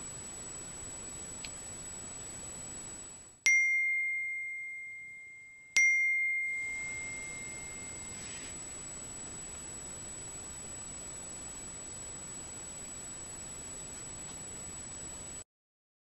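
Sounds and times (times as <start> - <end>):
bell-like chime: 3.5 - 8.8
steady hiss: 6.6 - 15.4.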